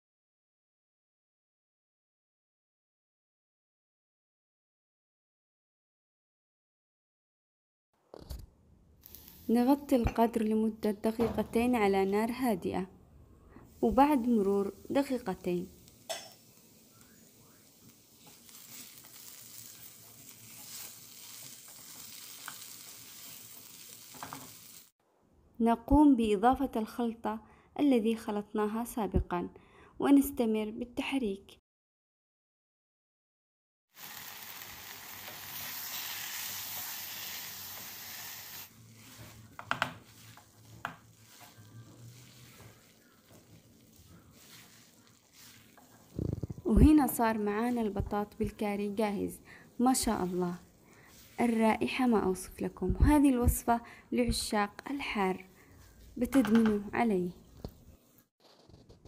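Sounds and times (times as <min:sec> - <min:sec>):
potatoes sizzling in oil: 0:09.0 - 0:09.9, 0:13.8 - 0:24.9, 0:33.9 - 0:46.1, 0:46.8 - 0:52.6
spatula stirring in pot: 0:17.8 - 0:23.7, 0:38.7 - 0:48.4, 0:49.6 - 0:51.8.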